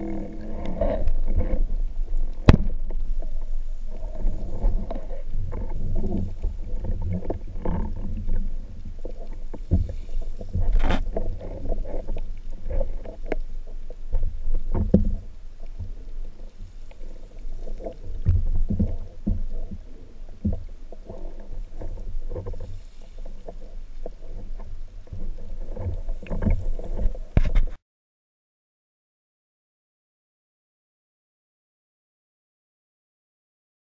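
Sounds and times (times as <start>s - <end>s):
underwater rumble of moving water: 0.0s - 27.8s
knocks and clicks of speargun: 2.4s - 2.9s.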